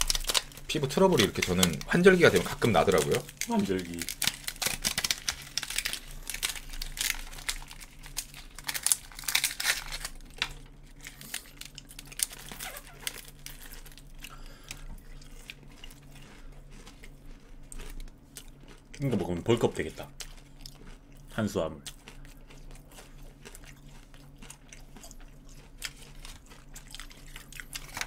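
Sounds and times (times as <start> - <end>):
paper packaging crinkling and tearing: 0.0 - 14.8, 25.8 - 28.0.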